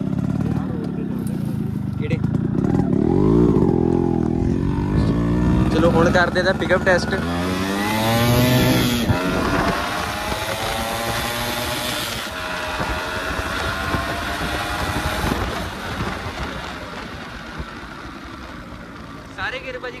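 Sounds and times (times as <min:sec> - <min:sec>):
motorcycle engine accelerating: 0:00.0 - 0:20.0
wind on microphone: 0:07.5 - 0:17.7.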